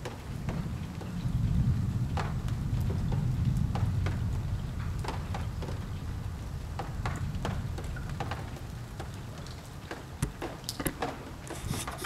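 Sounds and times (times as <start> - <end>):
raindrops ticking: 0.0 - 12.0.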